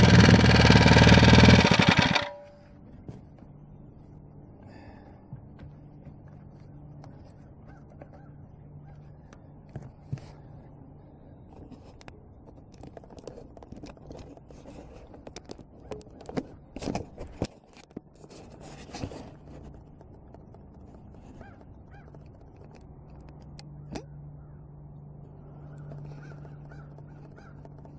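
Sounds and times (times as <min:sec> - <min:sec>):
faint low hum: 0:02.4 - 0:27.9
camera handling rustles and knocks: 0:11.5 - 0:23.6.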